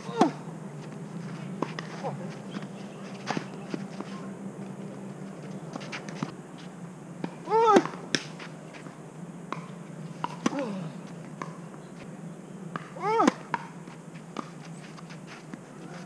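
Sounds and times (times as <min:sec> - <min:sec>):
tennis rackets striking ball: 0:09.5 - 0:10.7, 0:11.3 - 0:11.6, 0:12.7 - 0:13.8.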